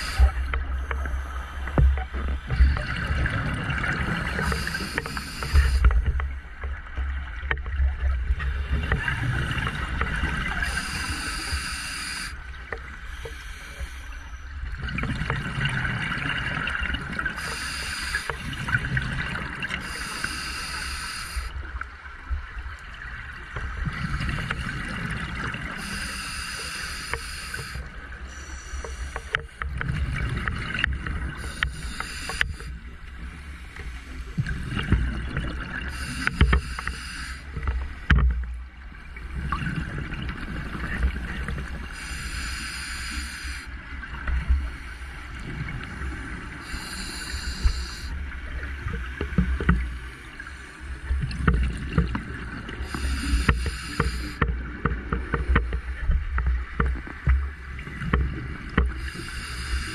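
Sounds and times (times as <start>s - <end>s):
regulator inhalation hiss: 0.0s - 1.5s, 4.3s - 5.9s, 10.6s - 12.4s, 13.1s - 14.2s, 17.4s - 18.5s, 19.8s - 21.5s, 25.8s - 29.6s, 31.4s - 32.8s, 35.9s - 37.5s, 42.0s - 43.7s, 46.6s - 48.1s, 52.8s - 54.4s, 59.0s - 59.9s.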